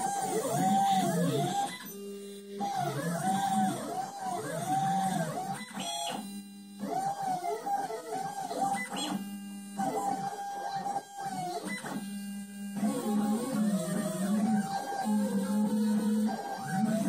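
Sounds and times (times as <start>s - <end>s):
stepper motors whining: 0.0s - 12.0s, 12.8s - 17.0s
buzzy steady tone: 0.0s - 17.0s.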